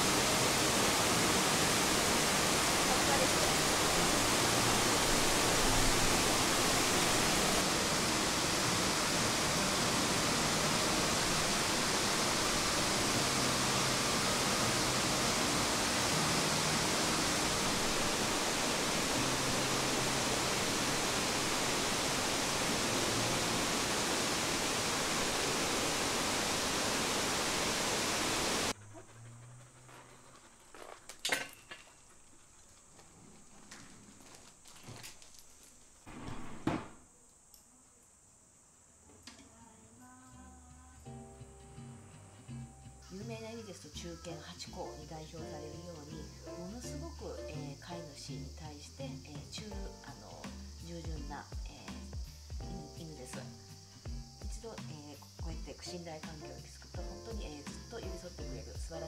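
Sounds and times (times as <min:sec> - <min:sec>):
waterfall rushing: 0:00.0 - 0:28.8.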